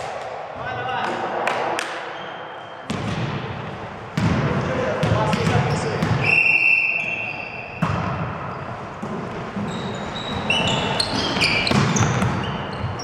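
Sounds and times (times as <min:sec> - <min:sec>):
shoes squeaking on floor: 0:08.5 - 0:13.0.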